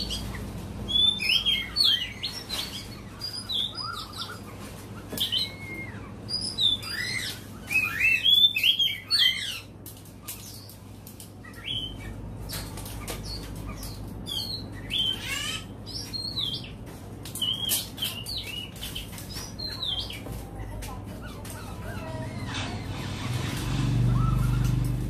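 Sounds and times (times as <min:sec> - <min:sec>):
bird singing whistled notes: 0:00.9 - 0:04.4, 0:05.2 - 0:09.6, 0:24.1 - 0:24.8.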